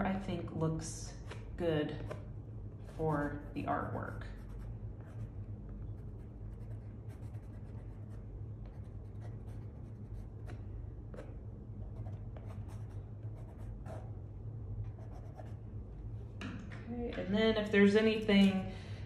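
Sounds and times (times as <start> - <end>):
steady low hum: 0.0 - 19.0
pencil scratching on paper: 6.0 - 10.6, 11.2 - 14.1, 14.9 - 15.6.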